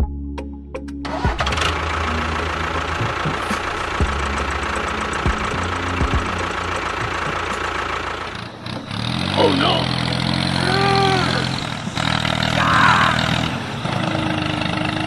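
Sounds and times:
motor running with rattle: 1.4s - 9.0s.

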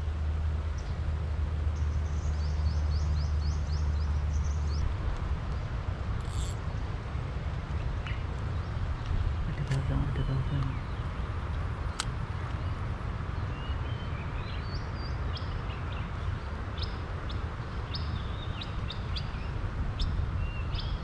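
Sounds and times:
steady low rumble: 3.4s - 13.1s
sharp click: 6.2s - 6.6s
birds chirping: 7.8s - 11.2s.

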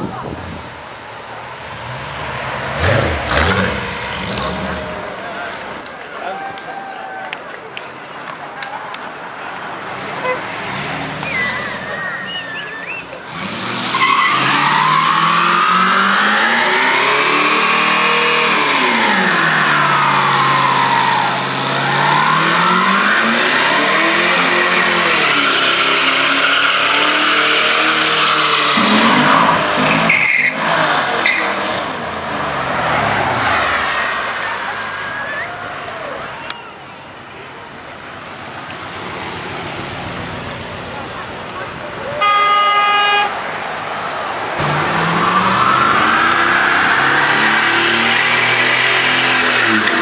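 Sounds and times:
car engine revving: 1.7s - 5.8s, 9.9s - 34.8s, 44.6s - 50.0s
tyres squealing: 11.1s - 31.7s.

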